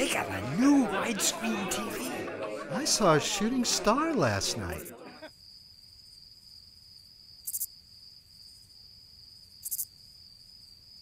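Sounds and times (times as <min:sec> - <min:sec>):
crickets chirping: 0:05.2 - 0:11.0.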